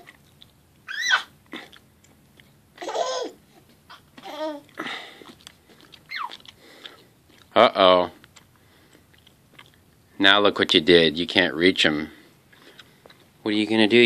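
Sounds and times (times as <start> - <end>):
baby babbling: 2.8 - 4.8.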